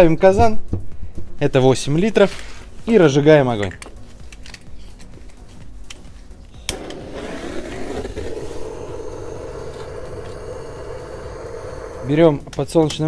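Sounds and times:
rushing flame: 0:06.7 - 0:12.2.

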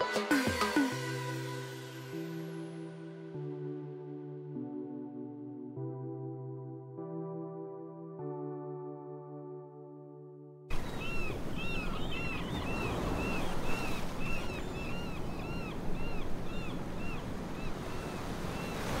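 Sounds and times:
music: 0:00.0 - 0:10.7
birds chirping: 0:10.7 - 0:19.0
ocean surf washing: 0:10.7 - 0:19.0.

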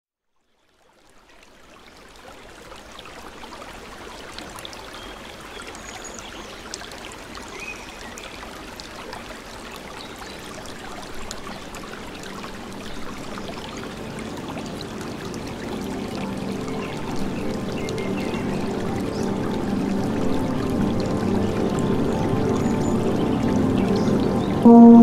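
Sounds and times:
babbling stream: 0:00.5 - 0:25.0
brief high chirps: 0:24.7 - 0:25.0.

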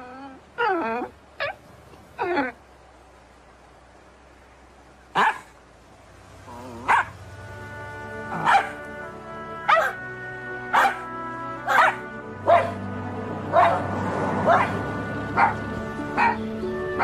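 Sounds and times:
puppies yapping: 0:06.5 - 0:07.2, 0:08.3 - 0:08.9, 0:09.7 - 0:10.0, 0:10.7 - 0:11.1, 0:11.7 - 0:12.8, 0:13.5 - 0:17.0
music: 0:07.2 - 0:17.0.

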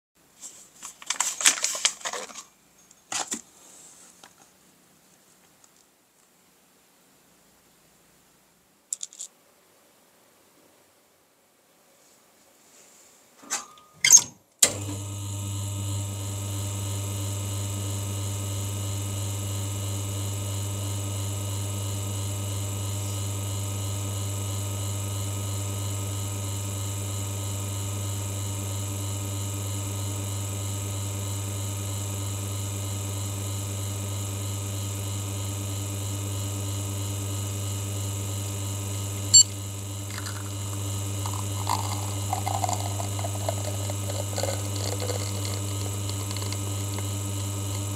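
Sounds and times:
espresso machine pump humming: 0:14.6 - 0:47.9
espresso trickling into glass: 0:40.0 - 0:47.9.

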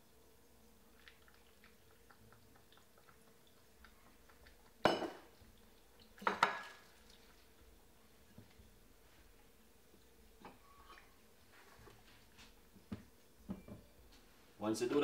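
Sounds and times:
kitchenware clinking: 0:04.8 - 0:05.4, 0:06.2 - 0:06.9.

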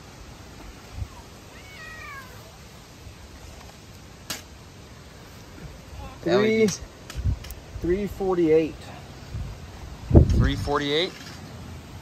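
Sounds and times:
cat meowing: 0:01.5 - 0:02.6.

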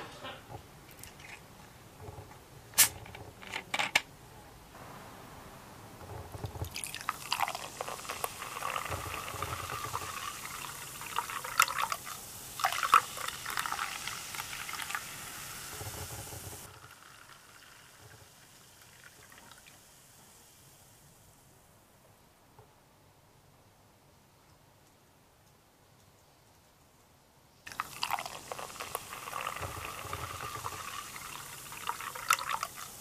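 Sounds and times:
cola pouring and fizzing: 0:00.8 - 0:03.0, 0:06.0 - 0:20.9, 0:27.7 - 0:33.0
faint hiss of bubbles: 0:04.7 - 0:21.8, 0:27.7 - 0:33.0.

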